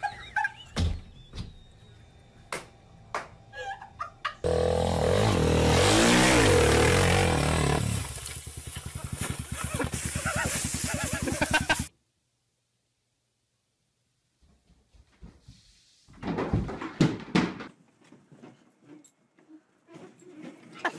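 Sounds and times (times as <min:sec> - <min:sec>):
motorcycle engine revving: 0:04.4 - 0:11.9.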